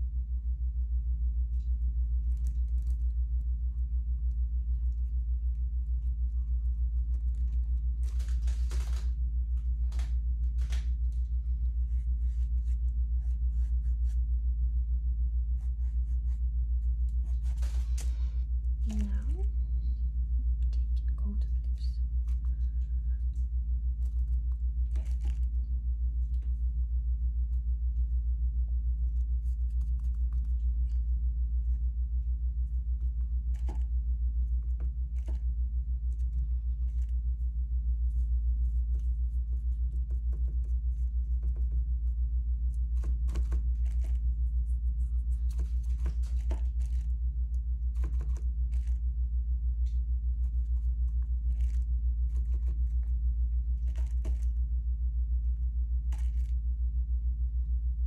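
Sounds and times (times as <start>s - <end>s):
steady low hum: 0.0s - 58.0s
faint rustles: 15.6s - 20.1s.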